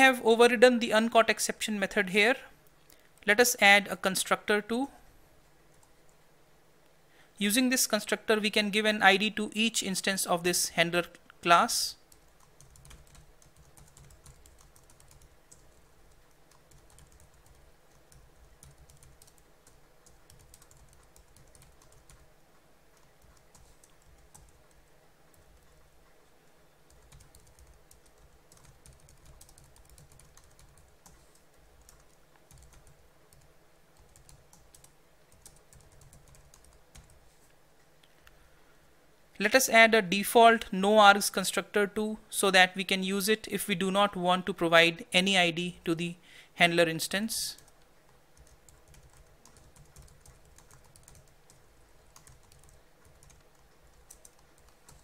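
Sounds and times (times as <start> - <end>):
faint computer keyboard typing: 5.7 - 6.2, 11.1 - 38.4, 47.5 - 55.0.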